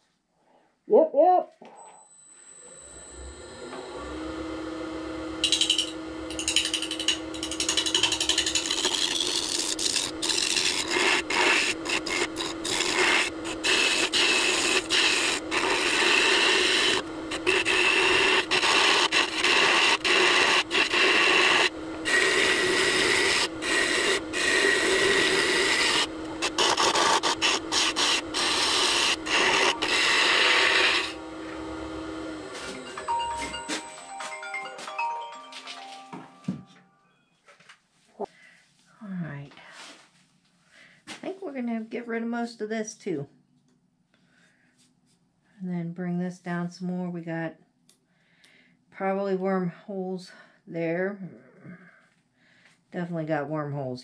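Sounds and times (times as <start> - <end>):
lathe motor hum: 2.6 - 33.8
tool scraping spinning wood: 3.6 - 33.6.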